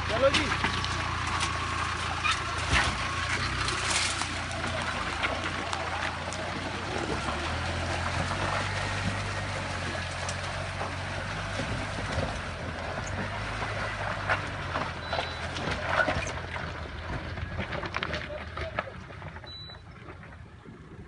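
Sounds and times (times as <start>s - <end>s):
water sloshing around wheels: 0.0s - 20.6s
car engine running low: 0.0s - 21.0s.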